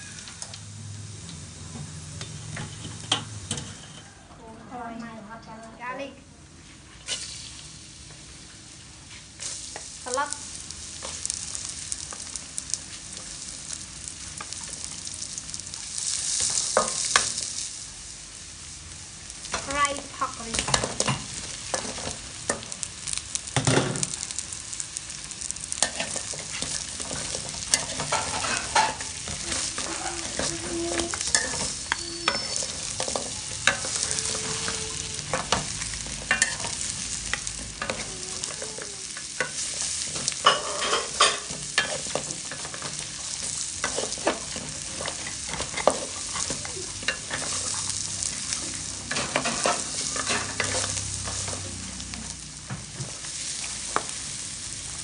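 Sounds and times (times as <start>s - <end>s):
garlic and onion sizzling in oil: 0.0s - 55.0s
spatula scraping metal wok: 25.3s - 52.4s.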